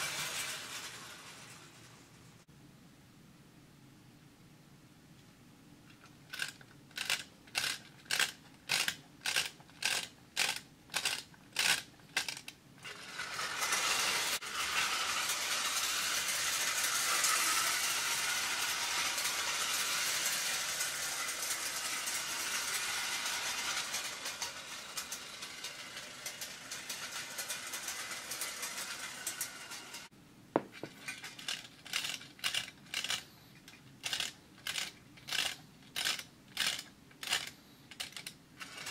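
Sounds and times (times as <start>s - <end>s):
toy train running on metal track: 0.0s - 2.2s, 6.3s - 30.1s, 30.8s - 38.9s
clockwork key ratchet clicking: 6.3s - 12.5s
clockwork motor whirring: 6.4s - 30.1s.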